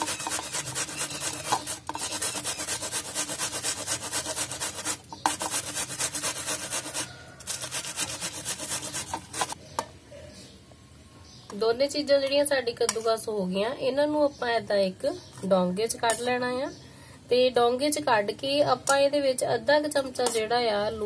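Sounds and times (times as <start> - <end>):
cabbage rasping on grater: 0.0 - 9.6.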